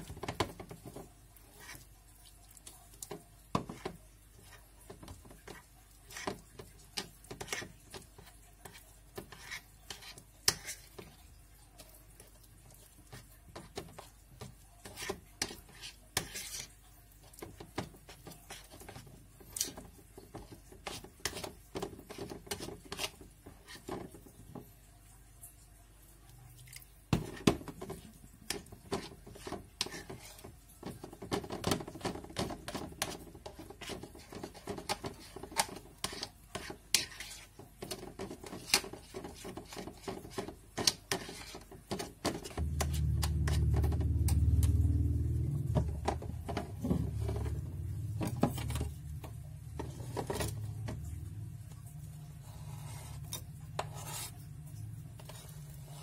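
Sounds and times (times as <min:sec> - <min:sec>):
spoon stirring batter in glass bowl: 0:00.0 - 0:56.0
low steady rumble: 0:42.6 - 0:56.0.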